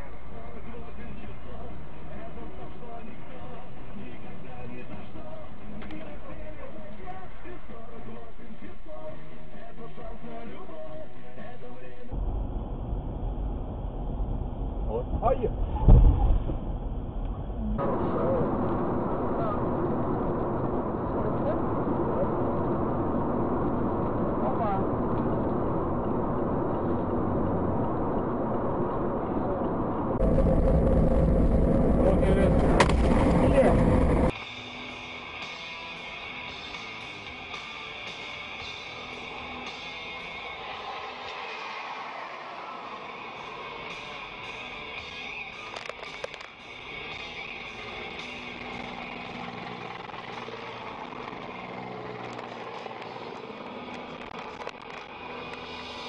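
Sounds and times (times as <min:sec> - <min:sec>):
car engine and tyre noise: 0:00.0 - 0:56.0
low rumble: 0:12.1 - 0:34.4.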